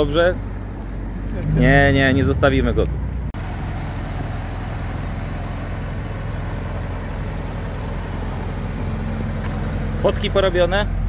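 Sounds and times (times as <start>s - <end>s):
car engine idling: 0.0s - 11.0s.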